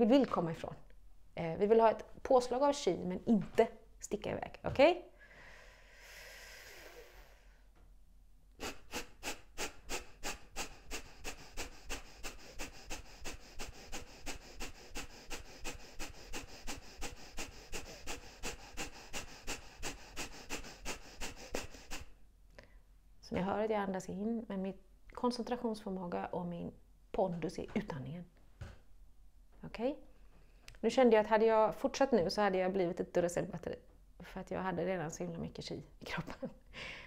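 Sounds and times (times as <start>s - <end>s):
forceful nasal exhalations: 5.2s - 7.7s, 8.6s - 22.2s
woman breathing in softly: 5.2s - 7.7s, 8.7s - 22.8s, 36.7s - 37.0s.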